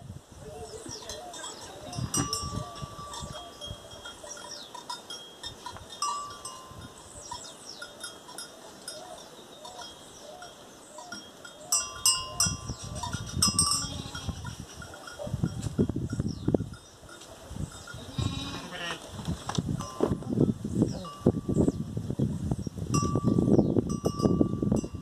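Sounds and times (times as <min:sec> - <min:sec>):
bell clinks: 0:01.0 - 0:18.1.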